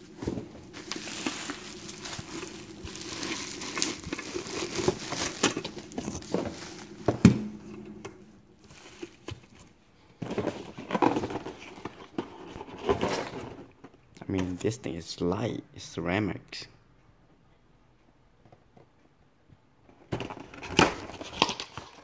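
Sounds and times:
plastic wrapping crinkling: 0.0 - 7.8, 8.6 - 9.8.

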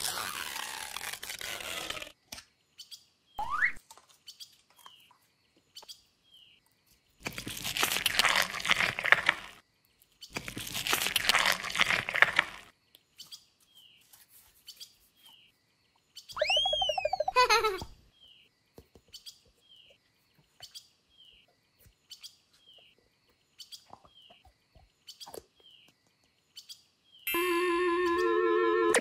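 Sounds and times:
slime squelching and crackling: 7.2 - 9.6, 10.3 - 12.7.

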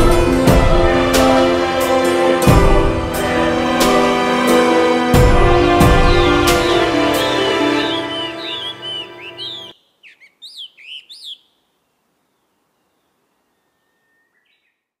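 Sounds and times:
background music: 0.0 - 9.7
high bird chirps: 5.9 - 11.7.

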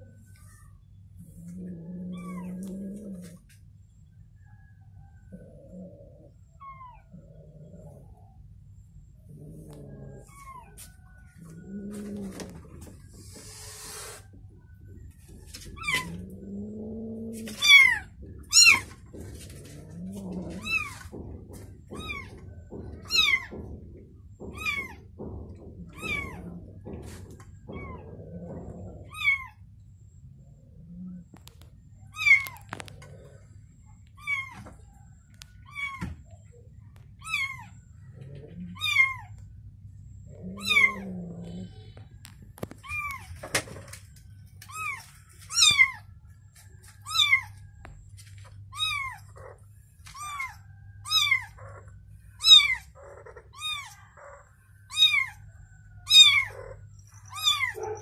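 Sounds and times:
knocks: 17.2 - 29.0
kitten mewing: 40.5 - 41.1.

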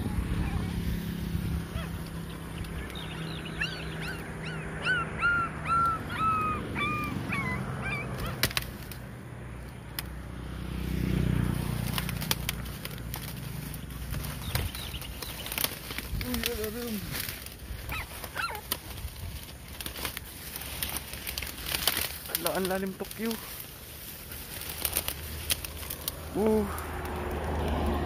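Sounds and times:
puppies squealing: 3.2 - 8.4, 17.8 - 18.8
clicks and rustling: 8.2 - 10.2, 11.7 - 27.9.

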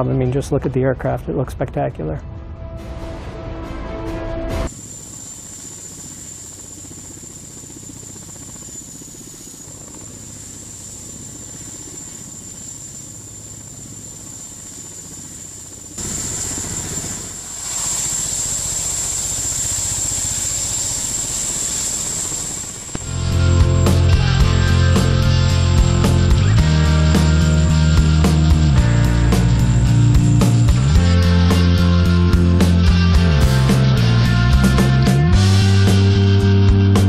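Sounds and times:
thin high whine: 3.2 - 34.1
helicopter rotor and engine noise: 4.7 - 36.6.

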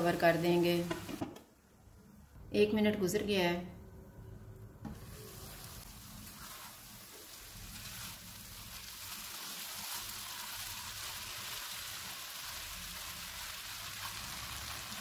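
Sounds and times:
vermicelli sizzling in syrup: 4.9 - 15.0.

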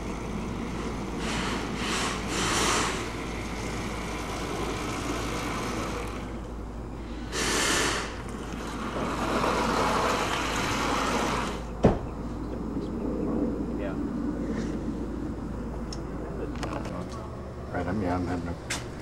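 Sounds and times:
robot motor and tyre hum: 0.0 - 11.8
outdoor noise: 0.0 - 19.0
brief loud hiss: 1.2 - 3.1, 7.3 - 8.2.

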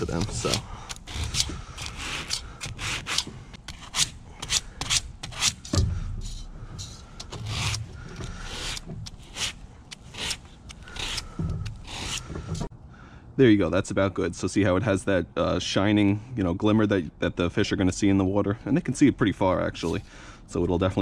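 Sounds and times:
sandpaper rasping on metal: 0.0 - 12.7.

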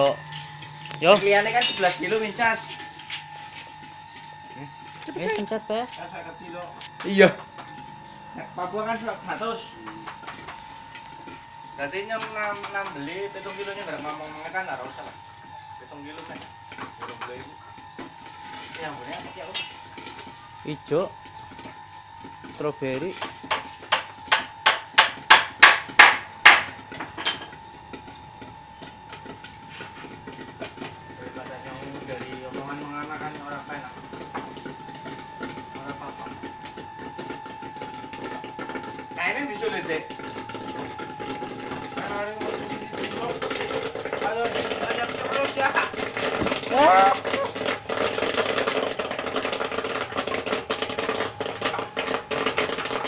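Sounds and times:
popcorn popping: 0.0 - 53.0
steady hum: 0.0 - 53.0
hammer blows on wood: 23.2 - 26.8.

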